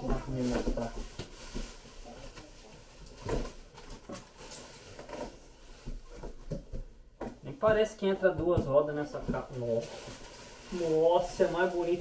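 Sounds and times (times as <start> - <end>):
plastic wrapping crinkling: 9.5 - 12.0.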